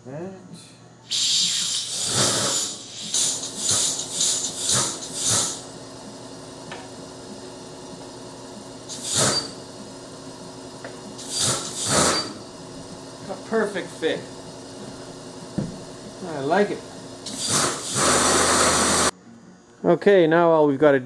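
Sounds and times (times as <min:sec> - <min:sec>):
short bursts of hissing: 0:01.1 - 0:05.6, 0:08.9 - 0:09.6, 0:11.2 - 0:12.4, 0:17.2 - 0:19.1
steady low hum: 0:01.8 - 0:21.0.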